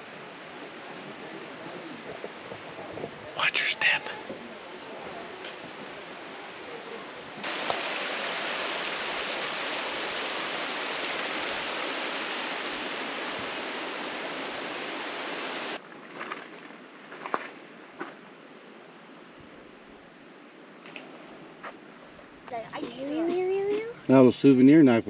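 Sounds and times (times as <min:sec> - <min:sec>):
mountain creek rushing: 0:00.0 - 0:15.8.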